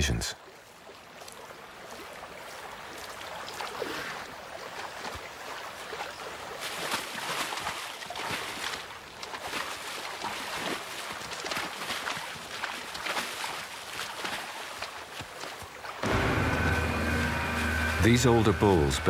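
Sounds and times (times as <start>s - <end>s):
rushing river water: 0.0s - 19.0s
water splashing around legs: 0.8s - 16.0s.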